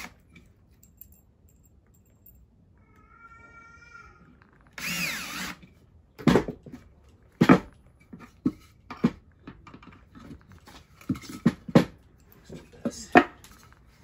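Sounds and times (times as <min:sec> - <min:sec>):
cordless drill into wood: 0:04.7 - 0:05.6.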